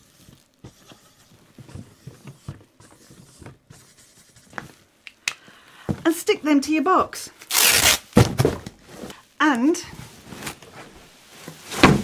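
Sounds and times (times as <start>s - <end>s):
marker scratching on card: 2.0s - 4.6s.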